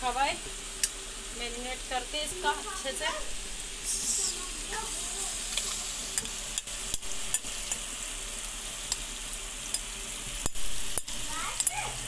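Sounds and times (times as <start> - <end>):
meat sizzling in a pot: 0.0 - 12.0.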